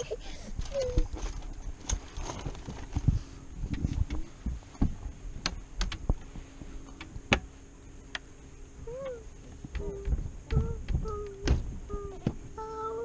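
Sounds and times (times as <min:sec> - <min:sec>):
sharp knocks and clicks: 0:03.7 - 0:06.3, 0:06.9 - 0:07.5.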